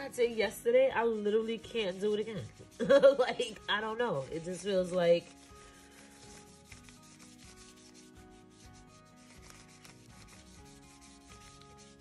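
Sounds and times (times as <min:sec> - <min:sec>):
paintbrush rubbing on paper: 0:00.0 - 0:12.0.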